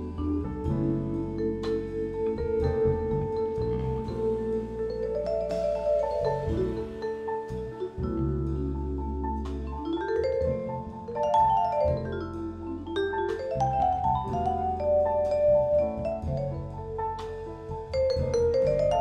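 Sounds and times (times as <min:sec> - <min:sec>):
low sustained notes: 0:00.0 - 0:11.1
vibraphone jazz solo: 0:00.0 - 0:19.0.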